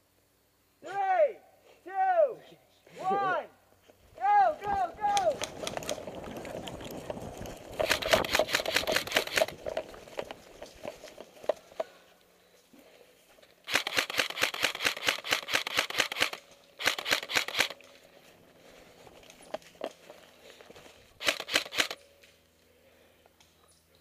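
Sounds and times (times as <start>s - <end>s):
airsoft rifle bursts: 7.8s - 9.7s, 13.6s - 18.0s, 21.2s - 22.1s.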